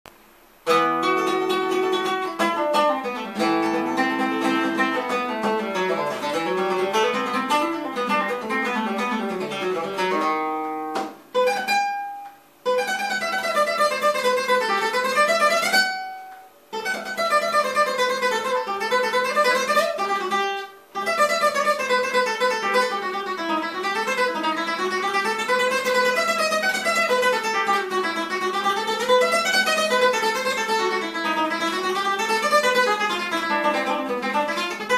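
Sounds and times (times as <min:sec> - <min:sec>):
acoustic guitar melody: 0:00.6 - 0:34.9.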